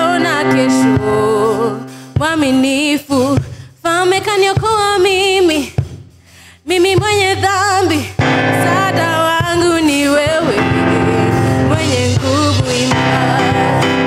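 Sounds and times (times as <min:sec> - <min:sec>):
person singing: 0:00.0 - 0:03.4, 0:06.8 - 0:14.0
instrumental accompaniment: 0:00.0 - 0:14.0.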